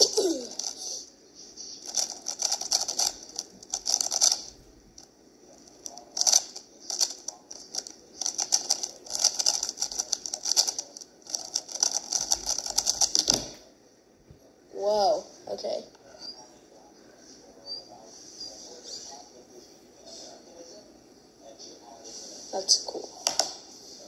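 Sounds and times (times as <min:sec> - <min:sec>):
puzzle cube clicking: 0:01.8 - 0:04.5, 0:05.9 - 0:13.4.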